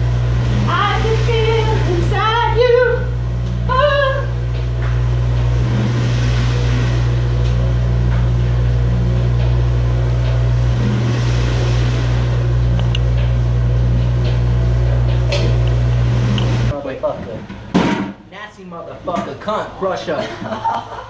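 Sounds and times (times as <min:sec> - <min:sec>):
dish machine humming: 0:00.0 - 0:21.0.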